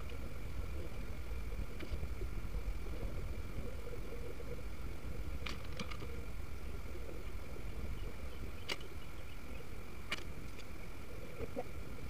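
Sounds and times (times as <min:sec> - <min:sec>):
faint hum: 0:00.0 - 0:12.0
small sharp clicks: 0:05.4 - 0:06.2, 0:08.6 - 0:09.0, 0:10.0 - 0:10.8.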